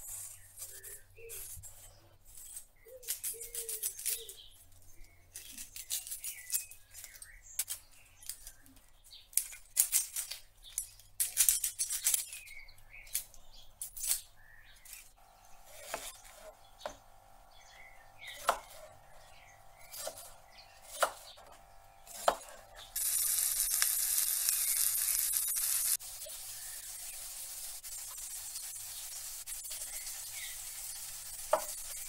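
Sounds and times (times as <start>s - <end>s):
knife chopping on cutting board: 15.7s - 17.0s, 18.2s - 18.9s, 19.9s - 21.5s, 22.1s - 22.6s
loud steady hiss: 22.9s - 32.0s.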